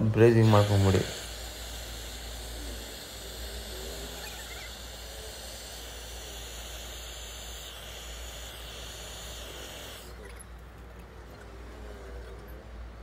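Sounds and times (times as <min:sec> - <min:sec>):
torch flame hissing: 0:00.0 - 0:10.2.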